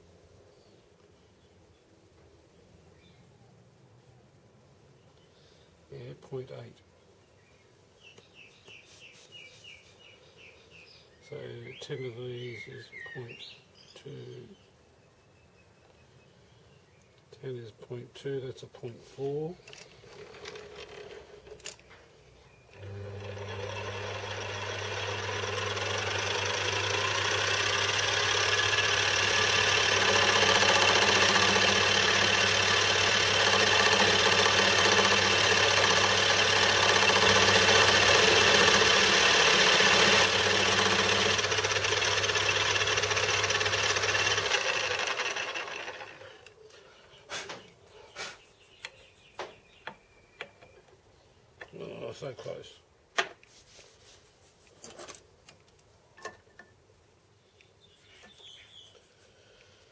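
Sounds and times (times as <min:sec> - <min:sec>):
lathe motor hum: 0:22.7 - 0:46.5
lathe cutting metal: 0:22.8 - 0:46.2.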